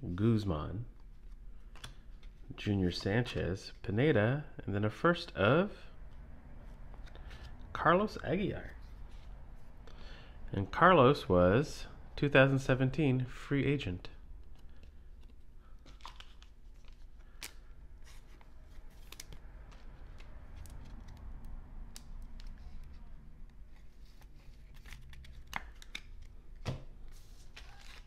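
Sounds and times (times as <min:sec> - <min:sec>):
cards rustling and clicking: 0:00.9 - 0:03.6, 0:14.4 - 0:28.0.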